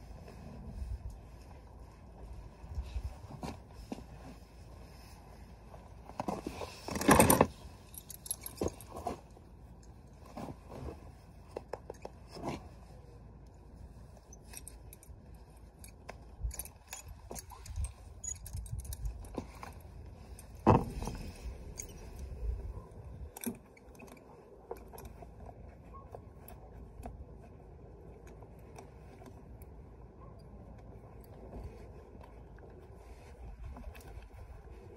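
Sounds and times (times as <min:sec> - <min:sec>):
metal buckles clinking and jangling: 0:06.3 - 0:10.5, 0:14.2 - 0:26.8.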